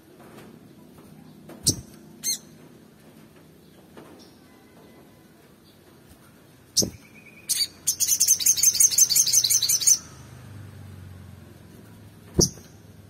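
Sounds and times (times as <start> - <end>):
bird singing high trill: 6.8 - 10.2.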